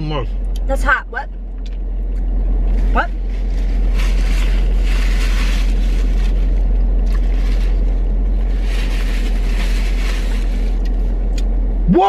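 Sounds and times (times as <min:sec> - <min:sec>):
car engine rumble inside cabin: 0:00.0 - 0:12.0
paper napkins rustling: 0:03.2 - 0:10.8.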